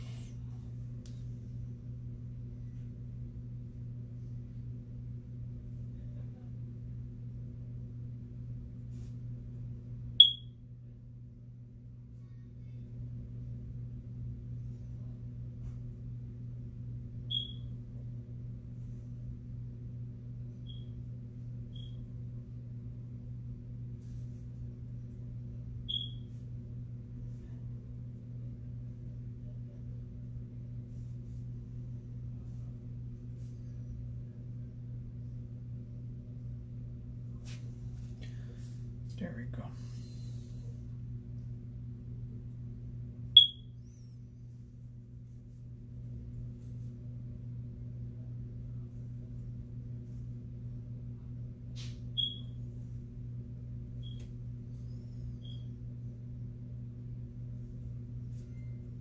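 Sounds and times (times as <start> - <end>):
low electrical hum: 0.0 - 59.0
high-pitched electronic beeps: 10.2 - 10.5, 25.9 - 26.2, 43.4 - 43.7.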